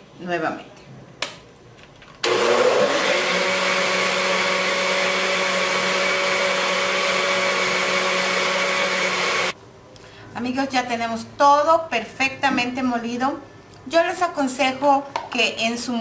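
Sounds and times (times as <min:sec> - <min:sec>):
blender running: 0:02.2 - 0:09.6.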